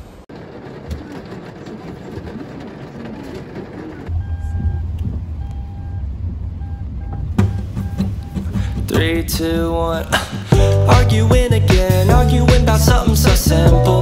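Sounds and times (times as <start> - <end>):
car interior rumble: 0.0 - 14.0
beeping tone: 4.1 - 9.0.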